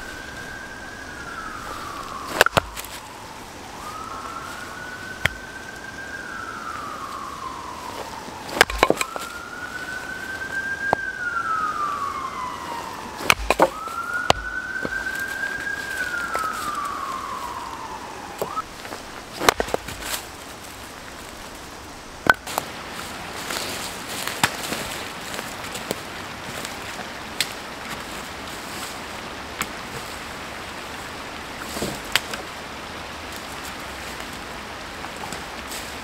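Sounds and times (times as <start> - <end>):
siren-like wail: 0.0 - 19.7
hatchet splitting firewood: 2.3 - 3.0, 5.2 - 5.4, 8.5 - 9.4, 13.2 - 15.3, 19.4 - 20.3, 22.2 - 22.7.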